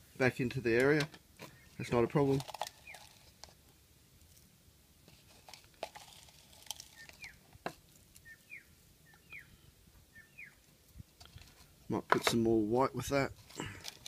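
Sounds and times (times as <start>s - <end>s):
small bird chirping: 1.4s - 3.3s, 6.6s - 7.5s, 8.1s - 10.7s.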